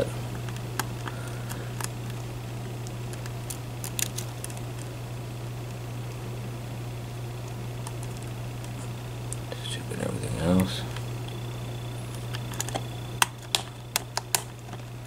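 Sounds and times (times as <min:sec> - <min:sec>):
steady low hum: 0:00.0 - 0:15.0
lock pick clicking: 0:12.3 - 0:14.6.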